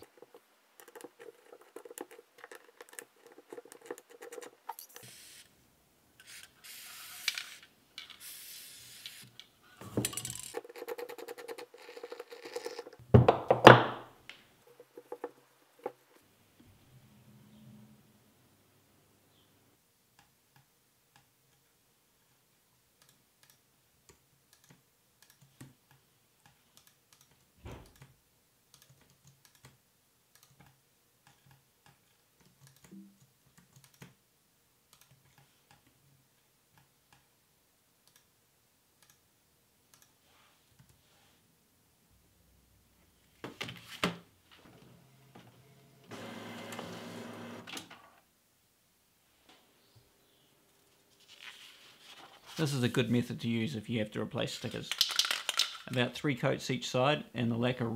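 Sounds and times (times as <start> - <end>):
keyboard and mouse clicks: 0.0 - 5.1, 10.3 - 13.0, 23.0 - 34.2, 34.9 - 36.0, 38.0 - 38.3, 39.0 - 39.2, 39.9 - 40.2
inkjet printer printing: 46.1 - 47.7.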